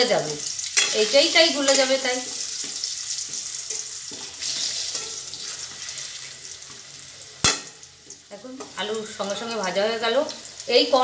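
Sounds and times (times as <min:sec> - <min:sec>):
potatoes sizzling in oil: 0:00.0 - 0:11.0
metal spatula stirring: 0:00.6 - 0:06.8
spatula clacking against pan: 0:02.6 - 0:05.4.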